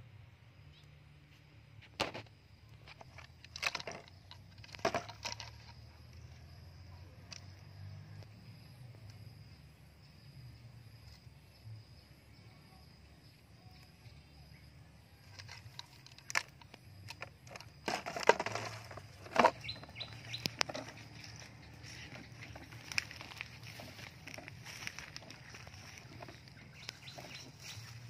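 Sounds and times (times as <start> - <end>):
rustling on dry leaves: 15.2 - 28.0
sharp clicks: 18.9 - 21.5.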